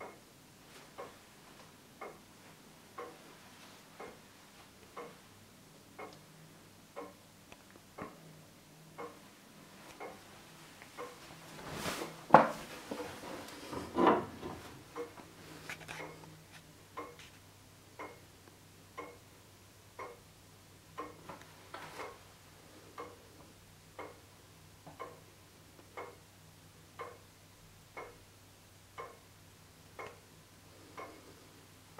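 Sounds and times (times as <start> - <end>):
clock ticking: 0.0 - 11.3, 14.8 - 31.9
handling rustles: 11.2 - 14.8.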